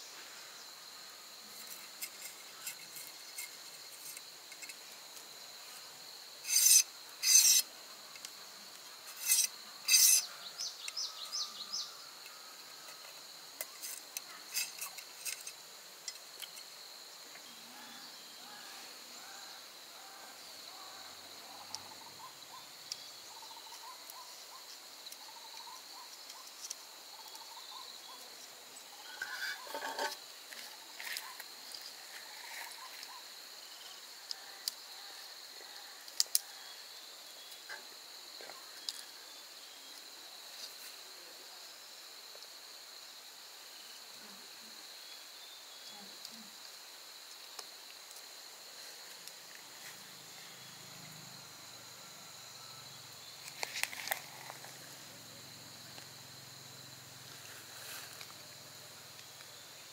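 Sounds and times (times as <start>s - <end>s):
insects chirring: 0.0s - 59.9s
loud rasping scrapes: 6.5s - 7.6s, 9.1s - 10.2s.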